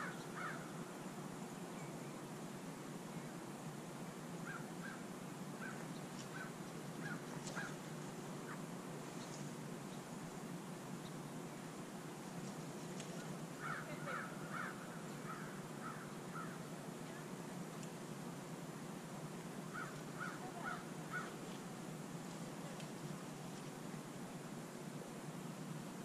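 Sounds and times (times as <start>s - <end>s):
bird calling: 0.0s - 0.7s, 4.4s - 10.1s, 13.1s - 16.7s, 19.7s - 21.4s
low background hiss: 0.0s - 26.0s.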